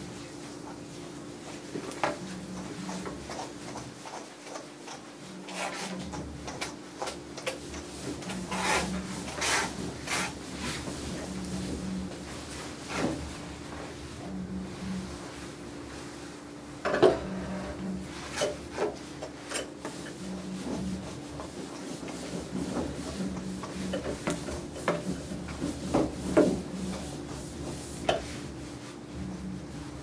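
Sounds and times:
steady low hum: 0:05.3 - 0:30.0
brush rubbing dog fur: 0:19.9 - 0:29.4.

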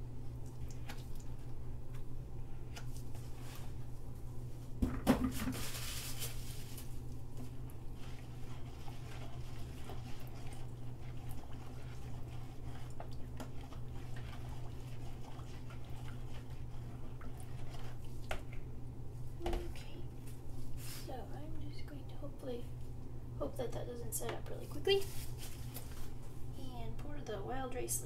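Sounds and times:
steady low hum: 0:00.0 - 0:28.0
rustling and scraping: 0:02.7 - 0:04.0, 0:04.9 - 0:18.4, 0:19.6 - 0:21.1, 0:24.3 - 0:26.6
plastic bucket knocking on table: 0:04.8 - 0:05.6
stirring in a plastic bowl: 0:05.2 - 0:18.7.

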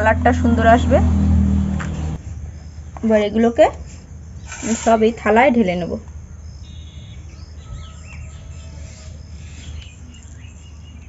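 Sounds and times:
birds chirping: 0:00.0 - 0:11.0
insect-like trill: 0:02.5 - 0:11.0.

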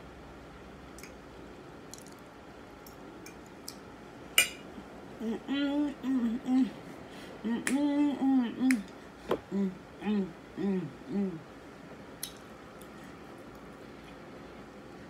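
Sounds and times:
woman humming: 0:05.2 - 0:11.5.

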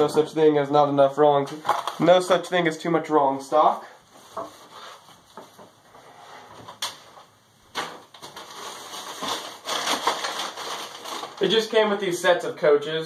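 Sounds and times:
items handled in shopping bags: 0:08.2 - 0:11.6.

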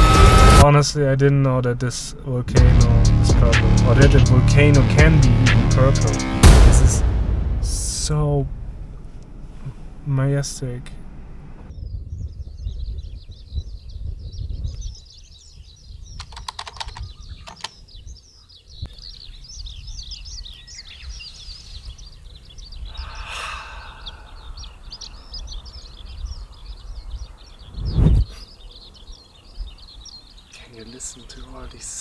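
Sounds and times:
low thump: 0:06.3 - 0:10.1
birds chirping and twittering: 0:08.9 - 0:32.0
wind rumble on microphone: 0:10.9 - 0:30.3.

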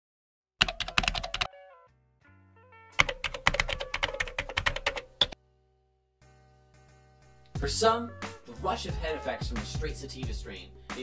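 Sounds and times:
keyboard typing clicks: 0:00.6 - 0:01.5, 0:03.0 - 0:05.4.

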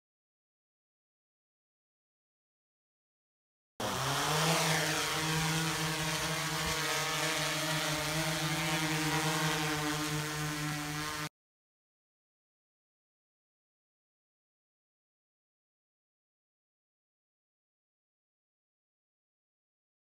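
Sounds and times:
quadcopter rotors buzzing: 0:03.8 - 0:11.3.

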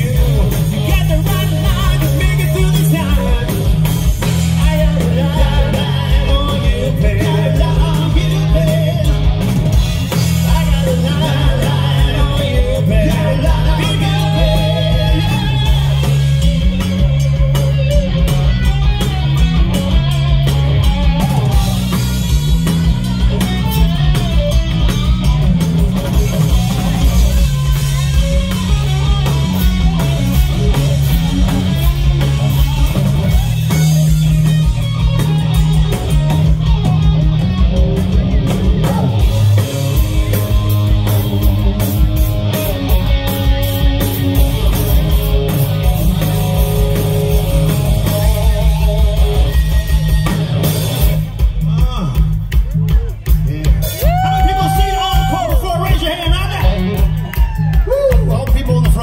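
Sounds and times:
bass guitar: 0:00.0 - 0:59.0
drum kit: 0:00.0 - 0:59.0
electric guitars: 0:00.0 - 0:59.0.

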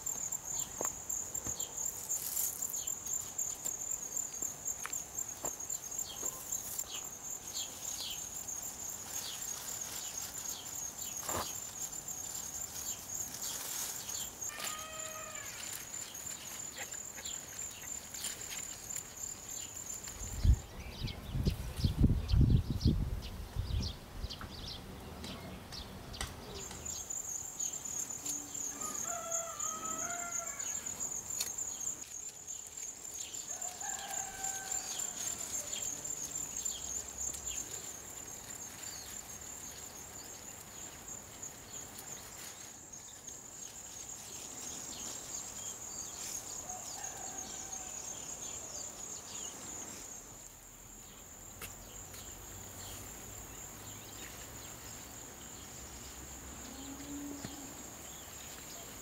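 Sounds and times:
high-pitched insect buzz: 0:00.0 - 0:20.6
rustling of garden plants: 0:00.0 - 0:59.0
rooster crowing: 0:14.4 - 0:15.7, 0:28.7 - 0:31.0, 0:33.5 - 0:35.8, 0:46.6 - 0:48.2.

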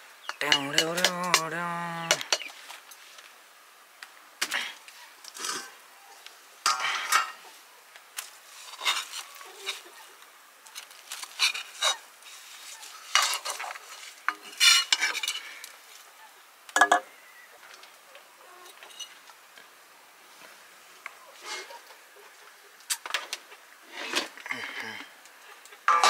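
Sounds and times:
metal spatula scraping iron pan: 0:06.7 - 0:07.4, 0:08.6 - 0:09.8, 0:13.0 - 0:15.4.

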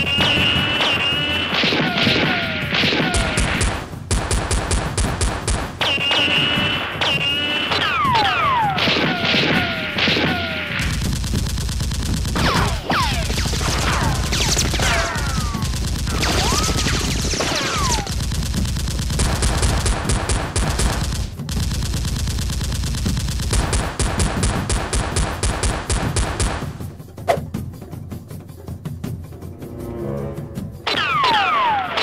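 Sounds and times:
whistling ricochets: 0:00.0 - 0:03.4, 0:05.8 - 0:10.7, 0:14.8 - 0:18.1, 0:30.9 - 0:32.0
rapid automatic gunfire: 0:00.0 - 0:26.9.

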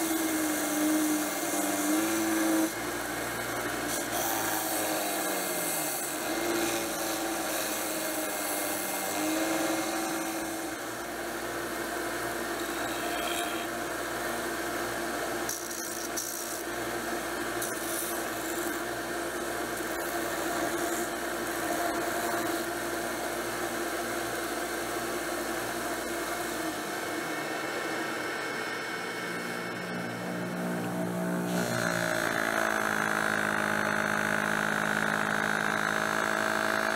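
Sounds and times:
belt sander sanding wood: 0:00.0 - 0:10.9.

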